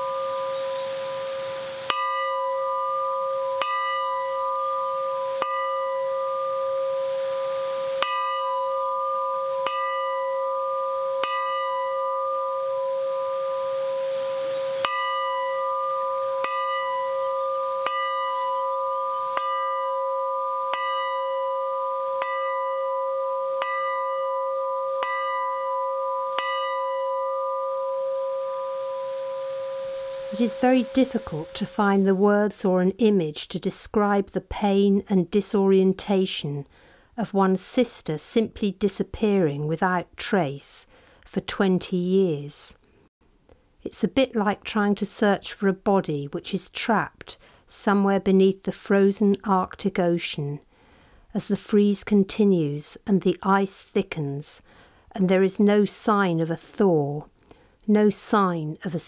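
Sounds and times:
bell-like metal tones: 0.0s - 6.9s, 7.5s - 13.0s, 14.8s - 32.2s
steady ringing: 0.0s - 14.0s, 14.8s - 32.4s.

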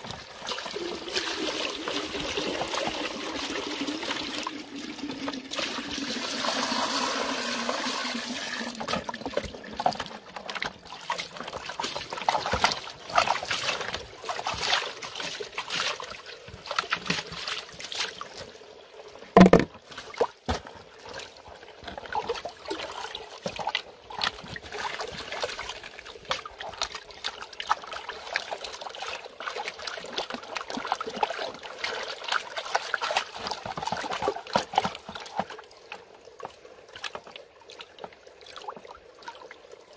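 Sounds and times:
water running: 0.0s - 19.6s
water splashing in plastic tub: 0.0s - 39.7s.

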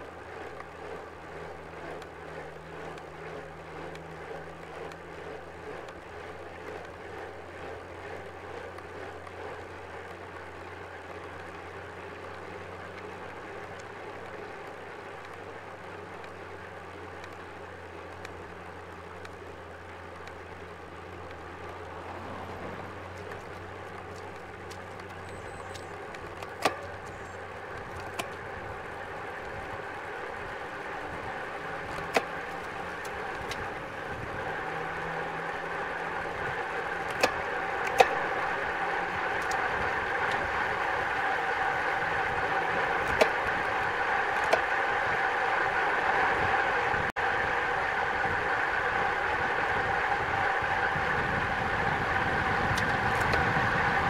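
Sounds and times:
wind and tyre rush: 0.0s - 54.0s
sharp clicks: 36.0s - 42.4s.

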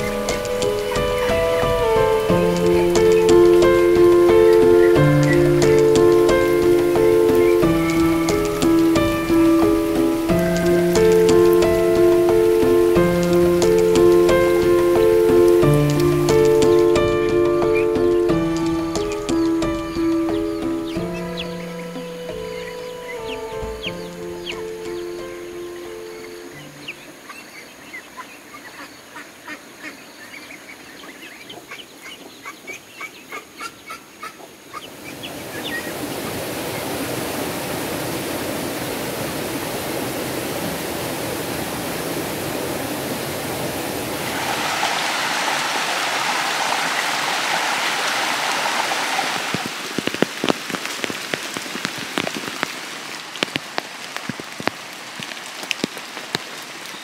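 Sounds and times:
drips and patters: 0.0s - 22.5s, 44.2s - 57.0s
heavy rain: 0.0s - 33.3s, 34.2s - 57.0s
ducks quacking: 26.9s - 35.8s.

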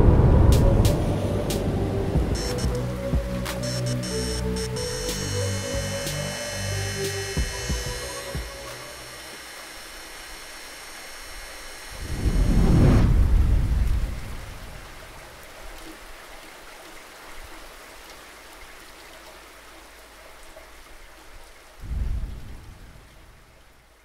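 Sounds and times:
deep thunder-like boom: 0.0s - 1.5s
rain-like hiss: 0.0s - 24.0s.

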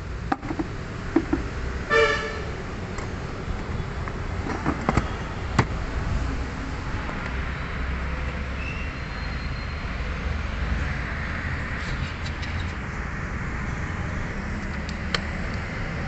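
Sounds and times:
car horn toot: 1.9s - 2.5s.

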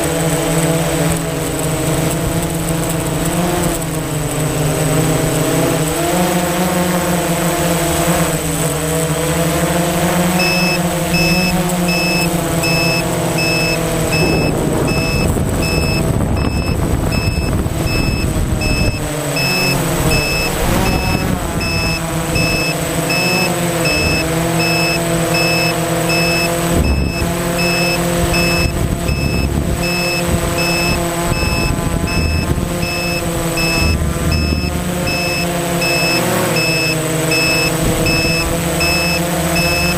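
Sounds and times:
drone propellers whining: 0.0s - 39.9s
high electronic beep: 10.4s - 39.9s.

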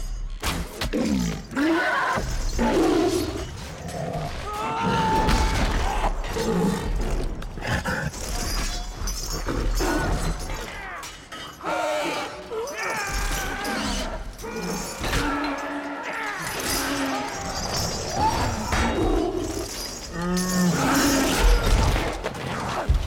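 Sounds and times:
creature roaring and growling: 0.9s - 8.7s, 11.6s - 22.1s.

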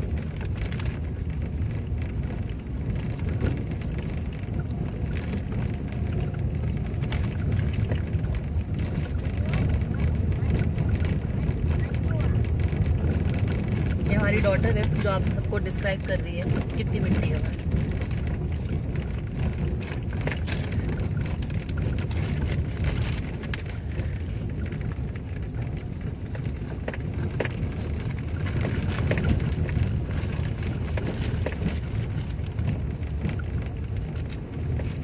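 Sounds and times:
car rumbling over dirt road: 0.0s - 35.0s.

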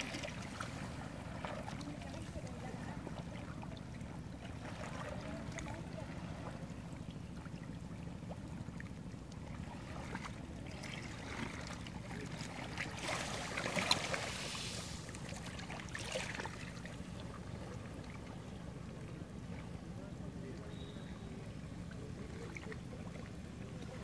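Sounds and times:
waves washing on a beach: 0.0s - 6.9s, 9.7s - 18.1s.

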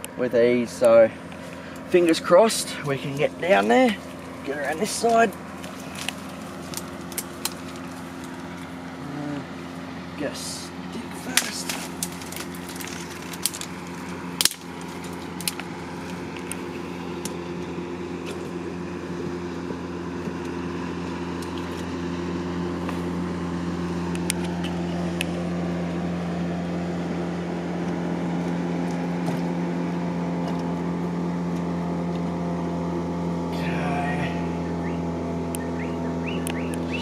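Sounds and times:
steady engine hum: 0.0s - 37.0s
twigs cracking: 3.1s - 9.0s, 11.2s - 18.6s.

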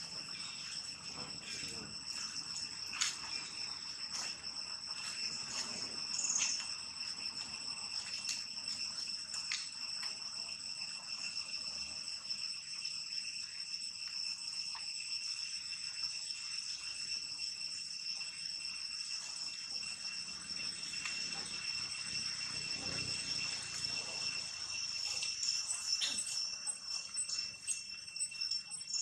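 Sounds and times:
insects buzzing: 0.0s - 29.0s.

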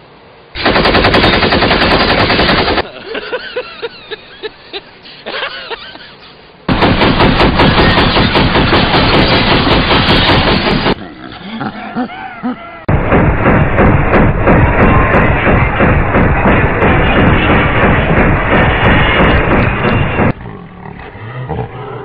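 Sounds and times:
loud rapid rattling: 0.6s - 2.9s, 6.7s - 11.0s, 12.9s - 20.4s
person crying out: 11.3s - 12.9s.

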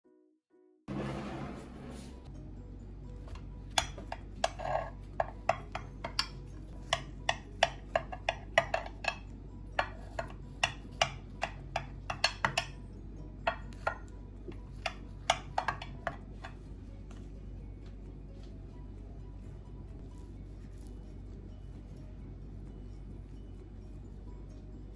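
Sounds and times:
knife clicking on glass dish: 3.8s - 12.8s.

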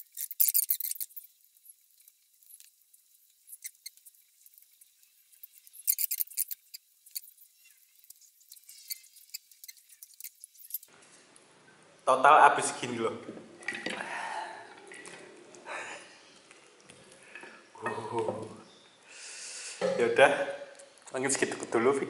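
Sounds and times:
chewing: 0.0s - 10.9s.

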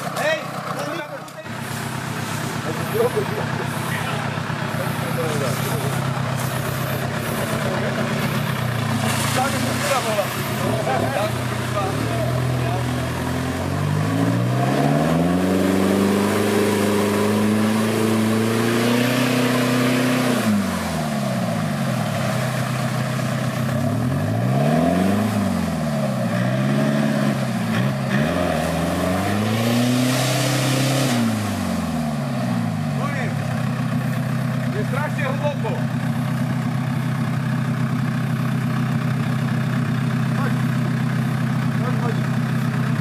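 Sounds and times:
vehicle engine revving: 0.0s - 43.0s.

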